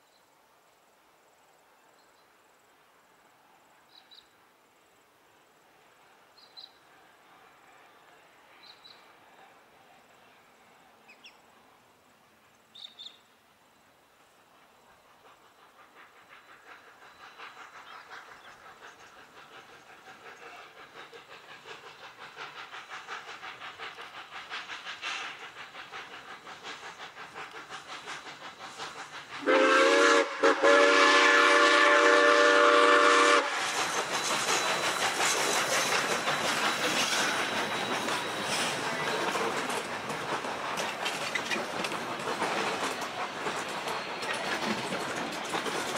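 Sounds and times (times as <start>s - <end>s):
hissing steam: 4.8s - 45.9s
steam locomotive exhaust beats: 14.0s - 45.9s
steam whistle: 29.4s - 33.6s.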